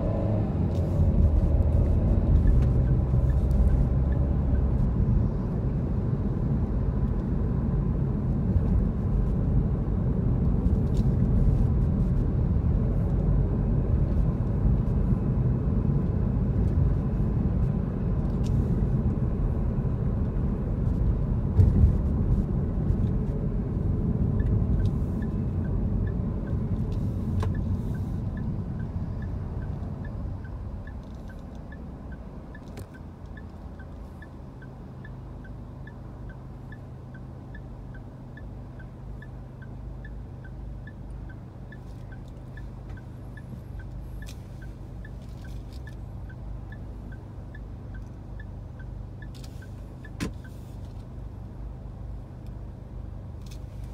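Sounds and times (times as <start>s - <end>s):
car engine idle hum: 0.0s - 53.9s
road and engine noise: 0.0s - 53.9s
light regular ticking: 24.4s - 50.6s.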